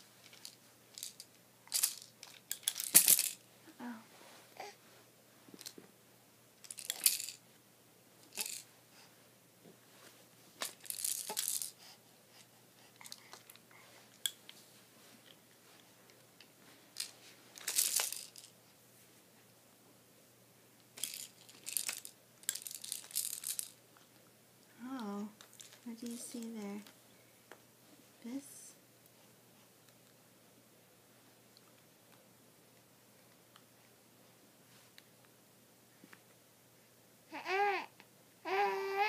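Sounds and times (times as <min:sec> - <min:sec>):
plastic toys handled: 0:00.2 - 0:03.4, 0:06.6 - 0:07.4, 0:08.3 - 0:08.6, 0:10.6 - 0:11.8, 0:16.9 - 0:18.5, 0:21.0 - 0:23.8, 0:25.4 - 0:26.9.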